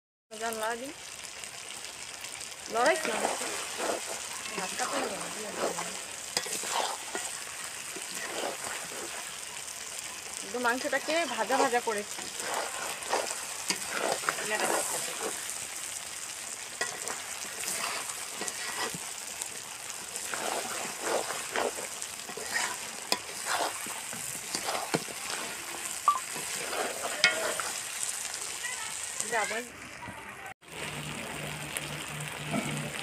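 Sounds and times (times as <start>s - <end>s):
chicken sizzling in a wok: 0.3s - 33.0s
metal spatula scraping a wok: 2.8s - 15.7s, 16.7s - 28.3s.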